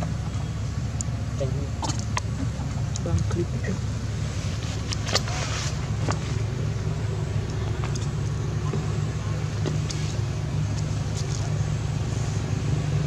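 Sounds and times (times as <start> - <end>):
steady low rumble: 0.0 - 13.0
faint clicks: 7.4 - 8.8.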